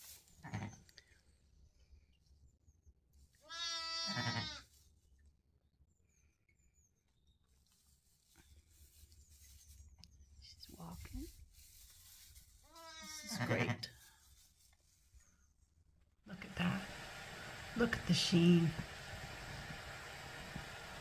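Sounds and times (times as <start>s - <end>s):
sheep bleating: 0.4s - 0.8s, 3.4s - 4.6s, 12.7s - 14.0s.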